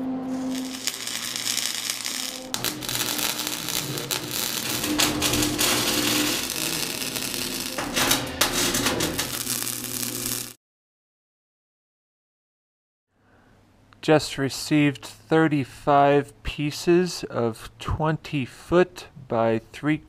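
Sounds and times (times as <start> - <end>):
welding arc crackling: 0.3 - 10.6.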